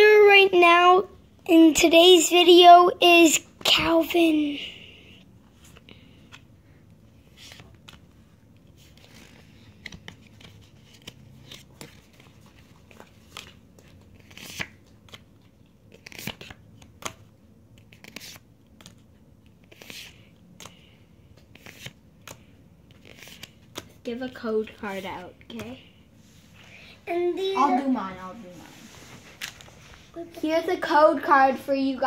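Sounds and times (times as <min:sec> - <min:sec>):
cards sliding and tapping: 0:07.3 - 0:25.8.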